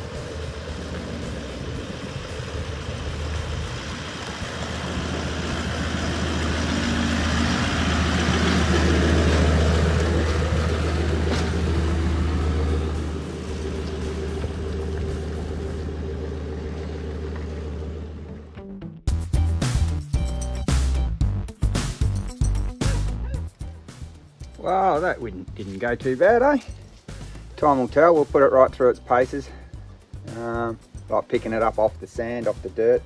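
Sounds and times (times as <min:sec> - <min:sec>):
vehicle engine pulling a trailer: 0:00.0 - 0:18.7, 0:22.5 - 0:33.0.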